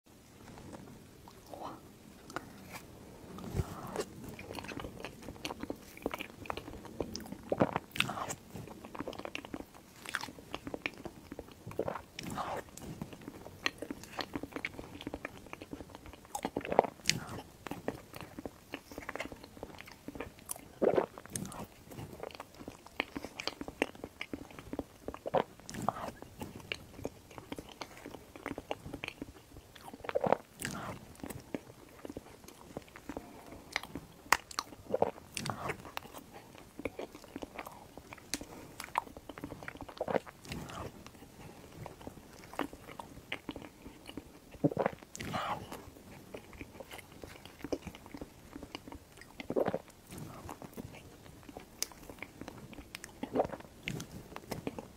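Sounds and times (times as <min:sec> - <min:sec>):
wet chewing and lip smacks: 0:00.4 - 0:54.9.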